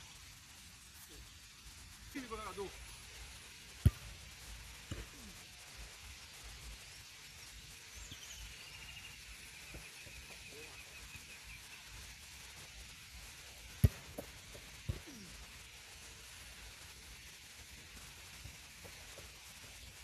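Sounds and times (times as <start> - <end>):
football kick thump: 3.8 - 4.2, 13.8 - 15.1.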